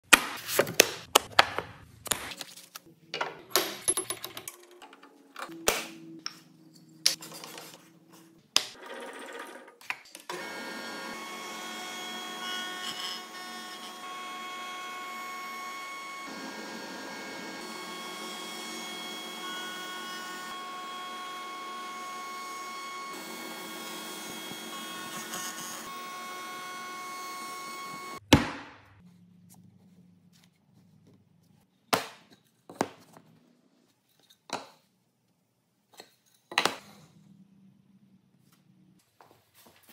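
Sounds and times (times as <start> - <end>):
router whining: 10.3 - 28.2.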